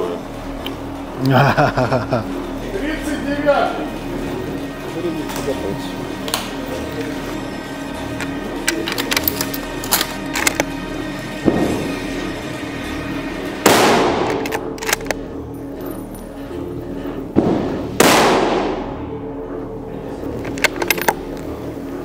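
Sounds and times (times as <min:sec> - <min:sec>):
background music: 0:00.0 - 0:22.0
rifle shots echoing: 0:13.6 - 0:15.2, 0:17.4 - 0:19.0
smaller gunshot report: 0:17.4 - 0:18.8.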